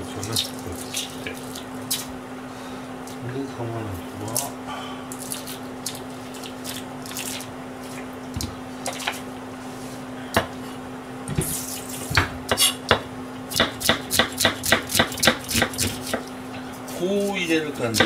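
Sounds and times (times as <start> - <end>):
knife chopping onion: 11.3 - 16.3, 17.8 - 18.0.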